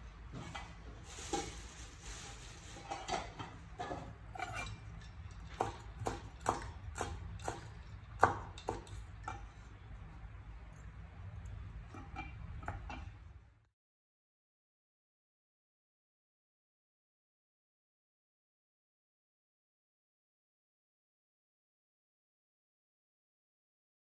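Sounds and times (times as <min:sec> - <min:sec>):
utensils clinking on a dish: 0:02.8 - 0:06.6.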